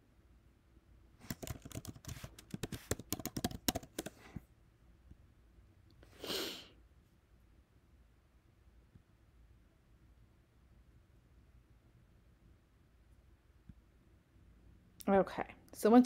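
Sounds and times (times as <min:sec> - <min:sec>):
keyboard key clicks: 0:01.3 - 0:04.1.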